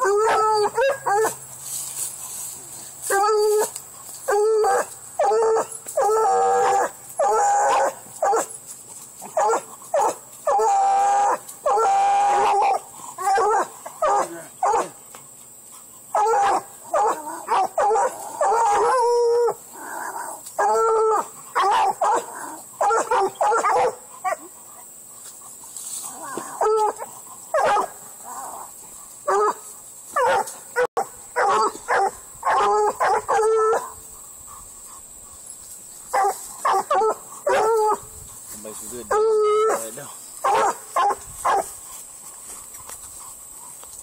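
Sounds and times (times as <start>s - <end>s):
dog barking: 6.6s - 8.5s, 9.3s - 10.7s, 11.3s - 15.0s, 16.1s - 19.0s, 21.6s - 24.4s, 27.5s - 28.0s, 30.2s - 33.9s, 36.1s - 37.8s, 39.6s - 41.7s.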